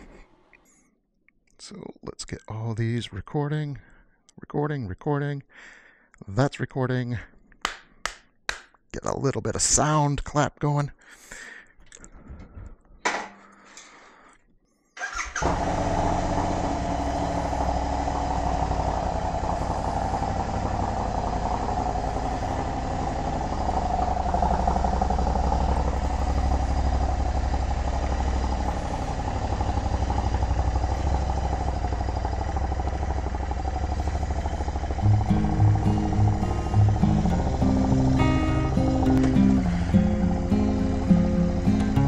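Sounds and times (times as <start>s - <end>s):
motorcycle engine starting and idling: 15.0s - 42.0s.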